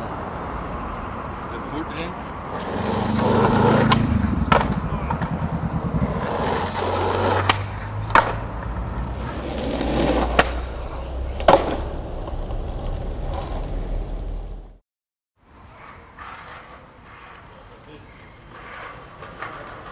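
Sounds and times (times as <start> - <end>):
skateboard wheels rolling on asphalt: 0.0 - 14.8, 15.4 - 19.9
skateboard clacks: 1.9 - 5.4, 6.2 - 10.6, 11.4 - 12.0, 15.6 - 19.9.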